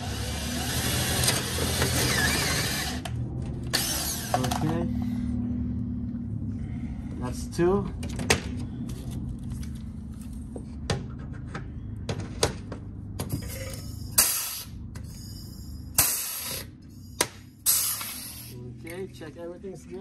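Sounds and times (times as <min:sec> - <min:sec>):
rivet gun air hissing bursts: 0:14.1 - 0:16.7, 0:17.6 - 0:18.6.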